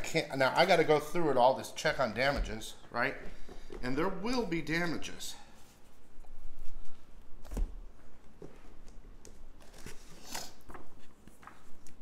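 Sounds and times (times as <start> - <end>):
paper and cardboard rustling: 5.6 - 12.0.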